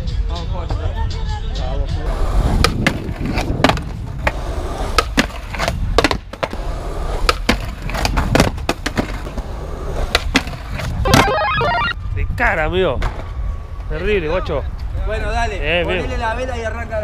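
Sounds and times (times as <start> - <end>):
skateboard wheels rolling on concrete: 1.8 - 17.0
skateboard clicks and knocks: 2.1 - 11.6.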